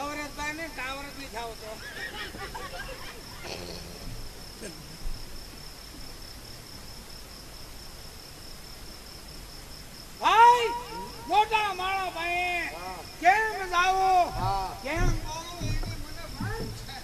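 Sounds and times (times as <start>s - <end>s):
crickets chirring: 0.0s - 17.0s
faint voices: 10.2s - 17.0s
short knock: 14.2s - 17.0s.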